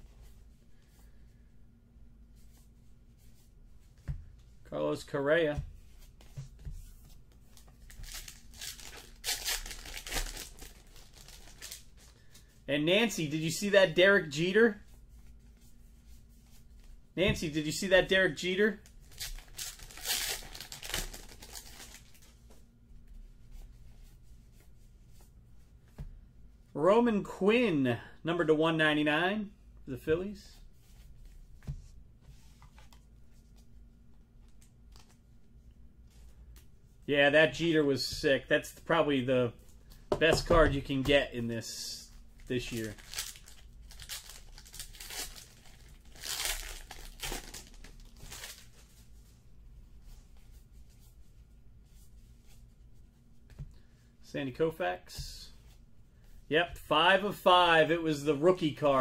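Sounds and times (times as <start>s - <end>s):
cards being handled: 5.6s - 12.6s, 42.1s - 49.3s
cards being flipped through: 6.0s - 12.1s
wrapper crinkling: 7.8s - 12.1s, 19.0s - 22.3s, 42.4s - 48.9s.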